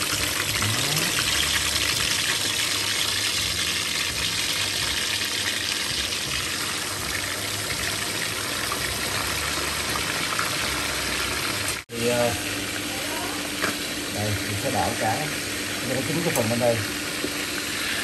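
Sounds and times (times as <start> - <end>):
fish deep-frying in oil: 0.0 - 18.0.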